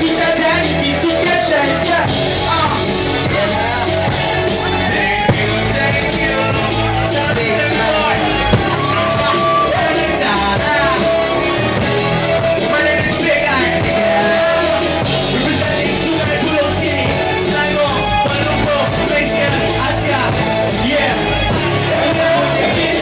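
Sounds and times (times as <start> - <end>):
sharp knocks: 5.3 - 5.6, 8.6 - 8.9.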